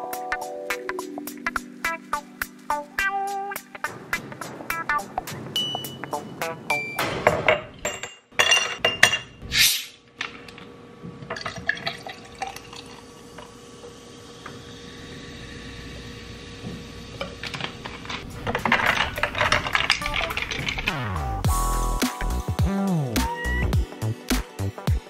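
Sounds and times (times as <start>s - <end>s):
sparkling water pouring and fizzing: 1.0s - 4.4s, 11.3s - 13.6s, 17.5s - 21.0s
ice cubes clinking into a glass: 18.5s - 20.9s.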